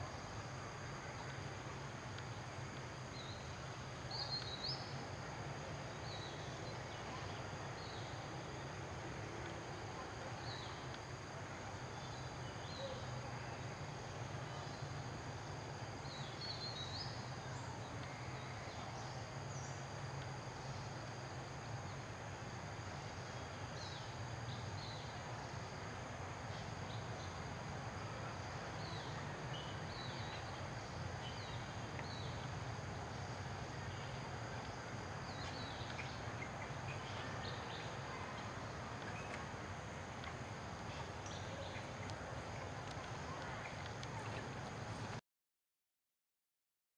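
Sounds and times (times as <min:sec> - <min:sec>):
insects droning: 0:00.0 - 0:45.2.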